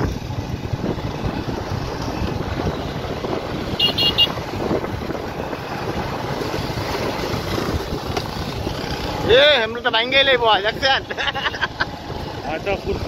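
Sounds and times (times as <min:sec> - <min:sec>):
wind buffeting microphone: 0:00.0 - 0:09.7
motorcycle engines running: 0:00.0 - 0:13.0.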